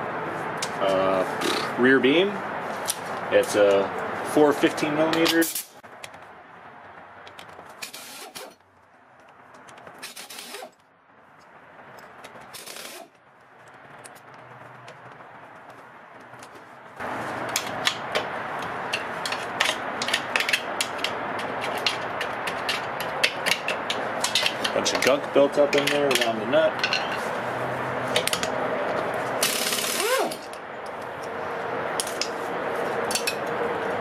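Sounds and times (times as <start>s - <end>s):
metallic clicks and scraping: 5.1s - 6.4s, 7.2s - 15.1s, 17.4s - 27.4s, 28.1s - 33.6s
ratchet pawl clicking: 29.4s - 30.4s.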